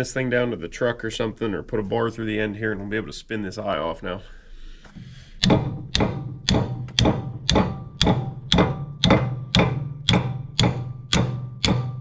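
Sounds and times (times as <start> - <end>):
hammer blows on steel ringing: 5.4 - 12.0.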